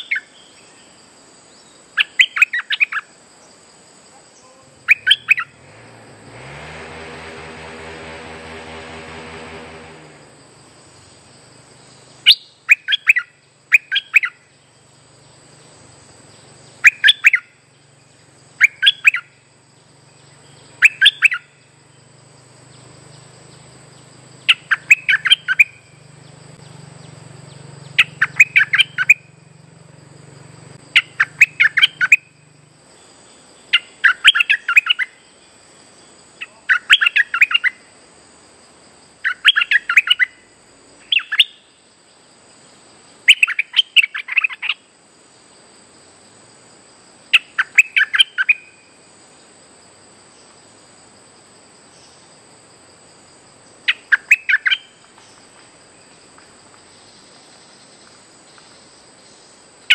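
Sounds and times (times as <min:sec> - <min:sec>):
bulbul singing: 0:00.0 - 0:03.1, 0:04.4 - 0:06.2, 0:09.9 - 0:35.5, 0:36.4 - 0:37.8, 0:39.2 - 0:40.4, 0:41.0 - 0:41.8, 0:43.2 - 0:44.8, 0:47.3 - 0:48.9, 0:53.9 - 0:55.5.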